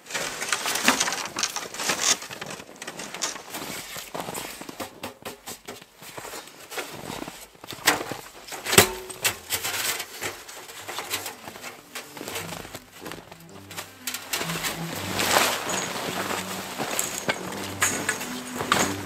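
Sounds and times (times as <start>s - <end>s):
metal pipe scraping and knocking: 8.6s - 19.0s.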